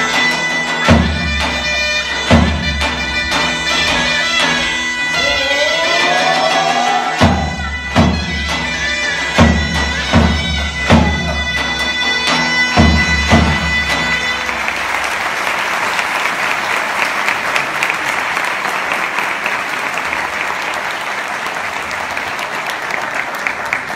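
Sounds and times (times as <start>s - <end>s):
zurna playing: 0.0s - 16.0s
heavy drum strokes: 5.2s - 14.1s
audience applause: 14.1s - 23.9s.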